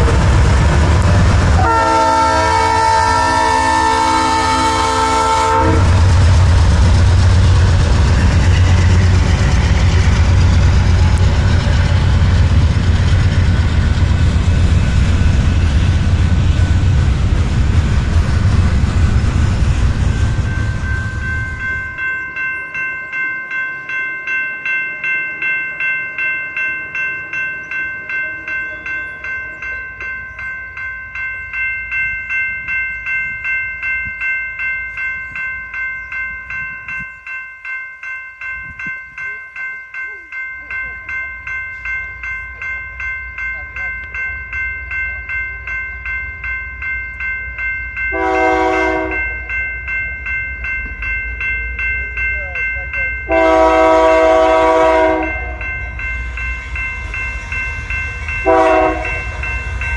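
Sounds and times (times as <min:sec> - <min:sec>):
train horn: 0:00.0 - 0:00.5, 0:01.5 - 0:06.1, 0:48.1 - 0:49.3, 0:53.3 - 0:55.6, 0:58.4 - 0:59.3
freight train rumbling past: 0:00.0 - 0:59.9
railroad crossing bell ringing: 0:00.0 - 0:59.9.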